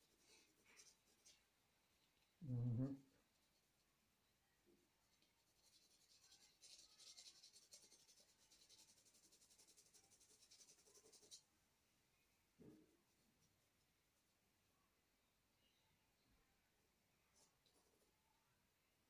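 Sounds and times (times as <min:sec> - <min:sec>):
pencil scratching on paper: 0:05.2 - 0:11.4.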